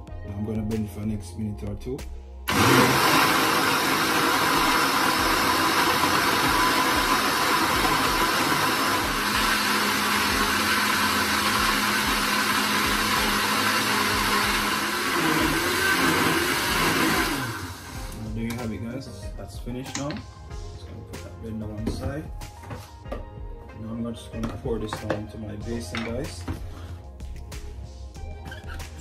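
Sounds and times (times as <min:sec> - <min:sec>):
blender running: 0:02.5 - 0:18.2.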